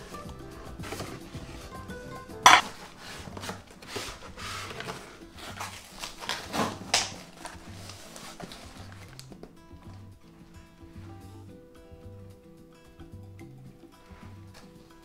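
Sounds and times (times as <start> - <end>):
soft background music: 0.0 - 15.0
cardboard rustling and scraping: 2.5 - 9.3.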